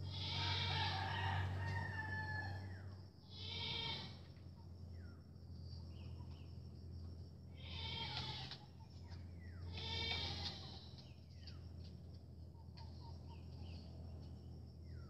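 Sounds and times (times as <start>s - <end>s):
farm animal crying: 0.0s - 4.3s, 7.5s - 11.1s
faint bird chirps: 4.5s - 6.8s, 8.6s - 15.0s.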